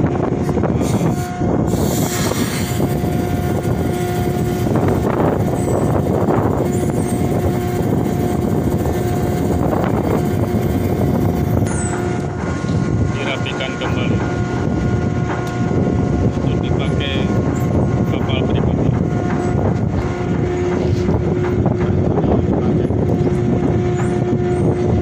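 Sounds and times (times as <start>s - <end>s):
ship engine droning: 0.0s - 25.0s.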